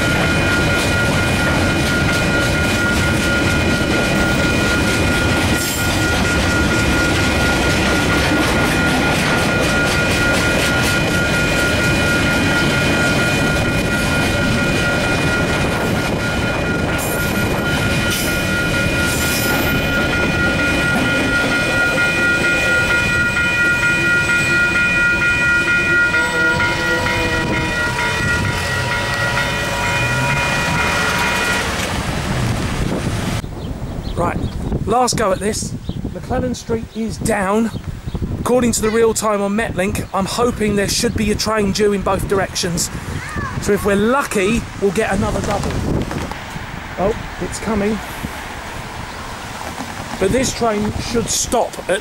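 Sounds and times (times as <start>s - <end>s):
level crossing warning bells: 0.0s - 32.6s, 50.2s - 52.0s
train wheels clicking over rail joints: 48.2s - 52.0s.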